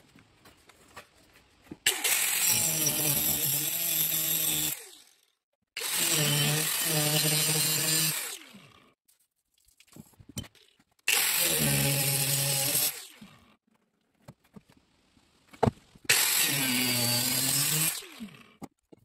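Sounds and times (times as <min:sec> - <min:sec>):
angle grinder cutting steel: 0:05.8 - 0:08.6, 0:11.1 - 0:13.2, 0:16.1 - 0:18.3.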